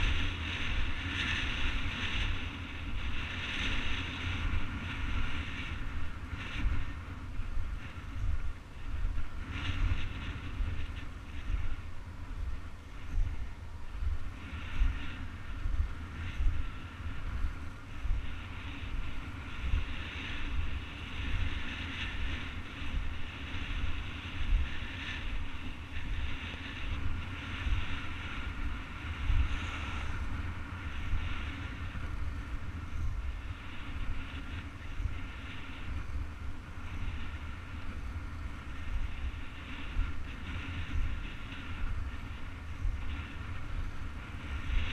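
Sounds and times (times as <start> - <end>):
skate wheels rolling on asphalt: 0.0 - 44.9
wind buffeting microphone: 0.0 - 44.9.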